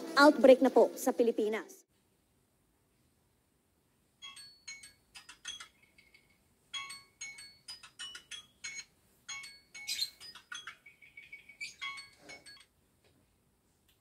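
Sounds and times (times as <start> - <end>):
phone alarm chiming: 6.8 - 12.7.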